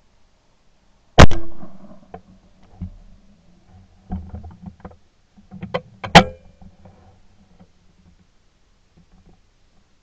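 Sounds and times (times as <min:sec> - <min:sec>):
shotgun firing: 0:01.2 - 0:02.0.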